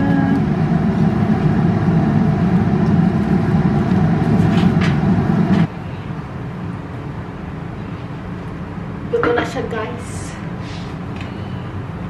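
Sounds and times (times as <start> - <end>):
range hood fan droning: 0.0 - 12.0.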